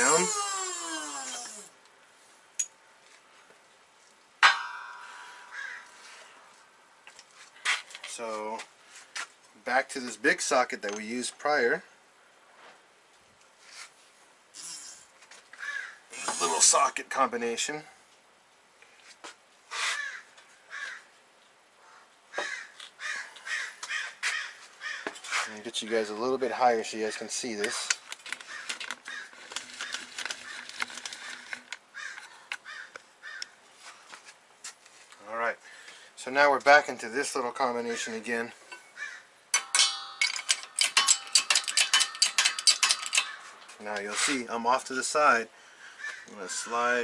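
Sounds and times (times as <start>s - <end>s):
steel clanging on metal: 4.4s - 5.9s, 39.5s - 44.3s
crow cawing: 5.0s - 6.2s, 15.6s - 16.0s, 19.9s - 21.1s, 21.8s - 25.2s, 28.4s - 33.6s, 39.0s - 39.3s, 41.7s - 43.6s, 45.8s - 46.7s.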